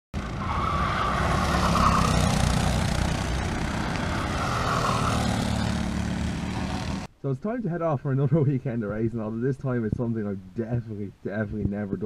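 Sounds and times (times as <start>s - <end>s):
kart engines racing: 0.2s - 7.1s.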